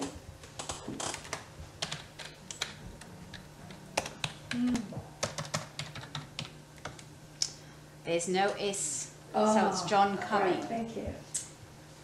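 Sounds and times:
low steady hum: 0.0s - 12.0s
typing on a keyboard: 0.6s - 2.8s, 5.2s - 7.1s.

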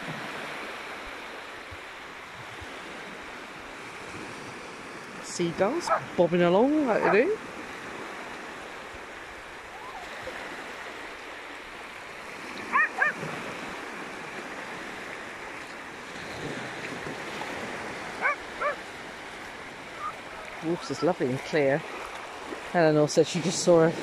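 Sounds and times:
small waves washing on sand: 0.0s - 24.0s
short animal calls: 12.7s - 13.2s.

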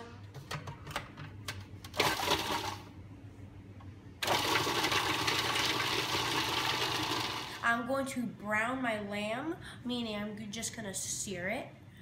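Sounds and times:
food processor motor chopping: 2.0s - 2.8s, 4.2s - 7.6s.

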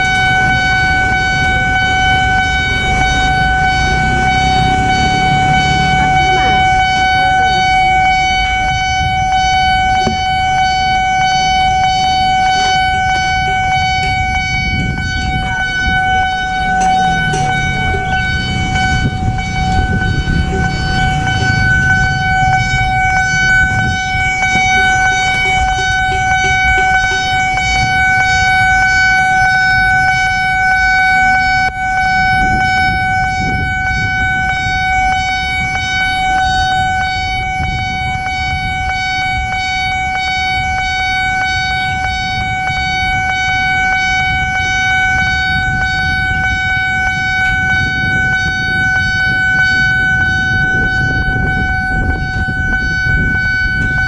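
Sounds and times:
level-crossing alarm tone: 0.0s - 54.0s
low rumble: 13.2s - 28.9s.

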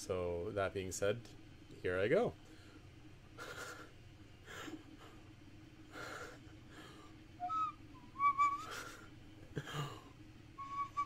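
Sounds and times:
person breathing: 5.9s - 7.2s.

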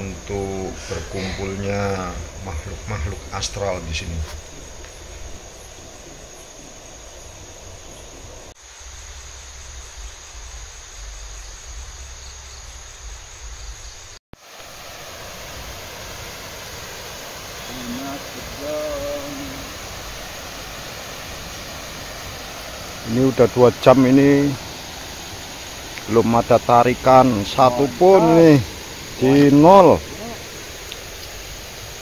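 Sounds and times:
high insect chirring: 0.0s - 32.0s
low hoot-like call: 17.6s - 20.0s.

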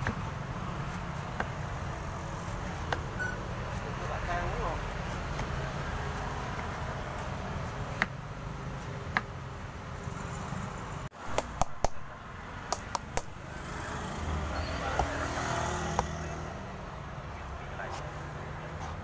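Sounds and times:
knife chopping coconut husk: 0.0s - 9.4s, 11.3s - 12.1s.

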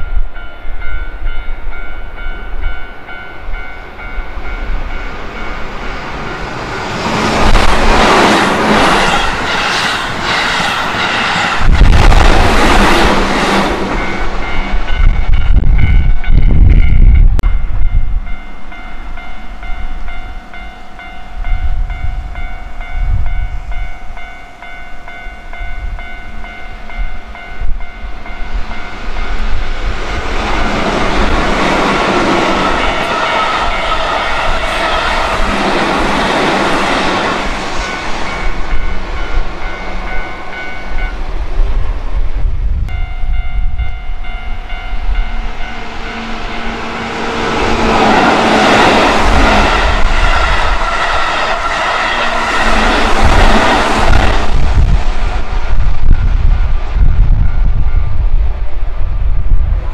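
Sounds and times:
steady high tone: 0.0s - 41.4s, 42.9s - 58.2s
electric train passing: 0.0s - 59.9s
second train approaching: 0.0s - 59.9s.

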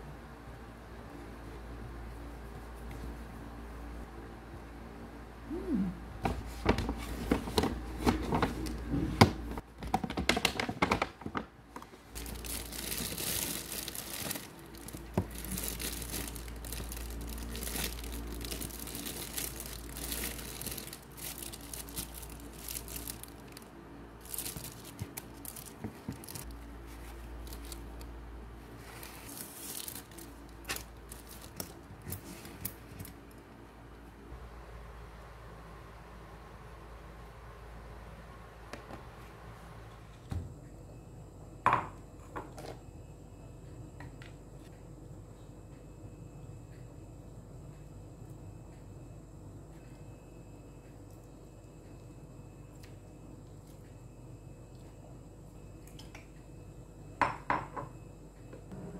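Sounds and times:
packaging crinkling and tearing: 12.1s - 26.6s, 27.2s - 28.1s, 28.9s - 33.2s.

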